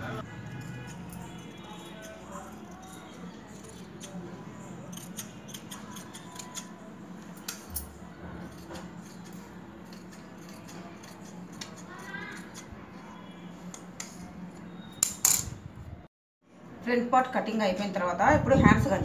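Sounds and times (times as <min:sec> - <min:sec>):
shears snipping fabric: 0:08.4 - 0:12.7.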